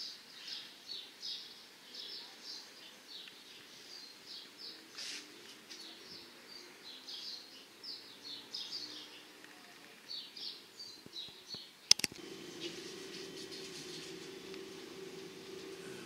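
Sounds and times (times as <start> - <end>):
small birds chirping: 0.0 - 16.0
sharp click: 11.5 - 12.2.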